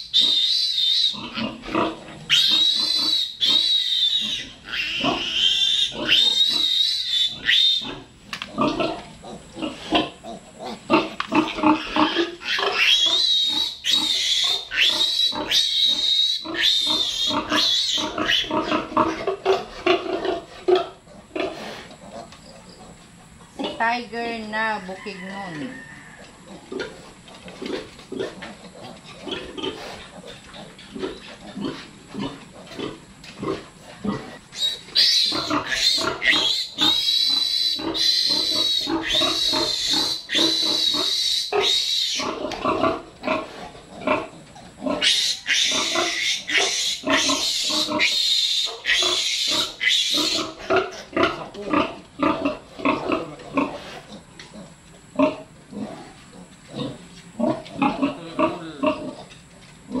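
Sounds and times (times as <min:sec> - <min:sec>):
piglets grunting: 0:00.0 - 0:23.0, 0:26.1 - 0:59.3
piglet squealing loudly: 0:02.3 - 0:08.0, 0:11.8 - 0:18.5, 0:45.0 - 0:50.6.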